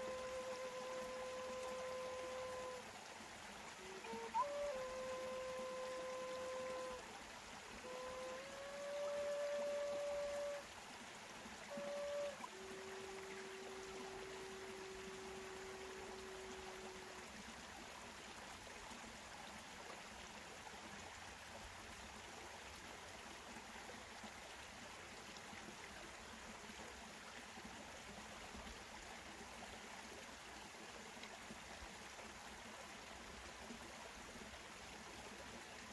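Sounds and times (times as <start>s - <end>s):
flute note: 0.0s - 2.8s, 3.8s - 7.1s, 7.7s - 10.7s, 11.6s - 17.2s
running water: 0.0s - 35.9s.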